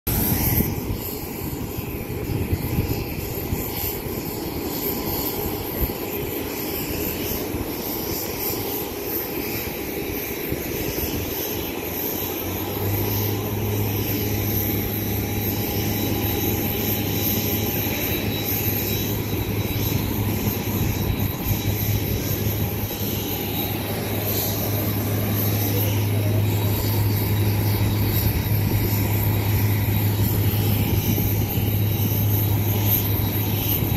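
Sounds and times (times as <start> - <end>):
jet engines whining and roaring: 0.1 - 33.9
low hum: 12.3 - 33.9.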